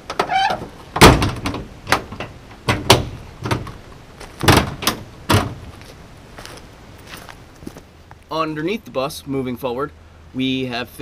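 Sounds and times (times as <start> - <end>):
metal door clanking shut: 0.1 - 3.7, 4.4 - 5.6.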